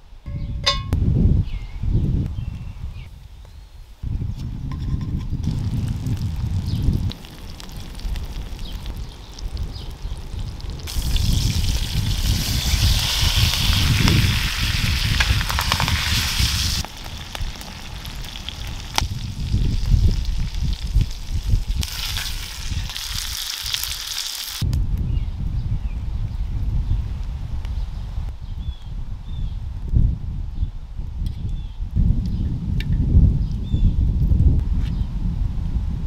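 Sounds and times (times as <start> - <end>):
fish sizzling in hot fat: 5.4 - 24.6.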